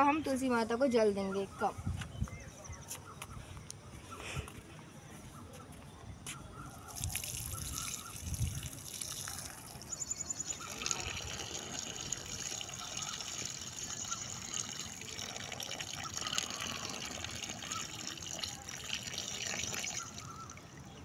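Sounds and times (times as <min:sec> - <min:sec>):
water splashing onto soil: 0:06.9 - 0:09.9.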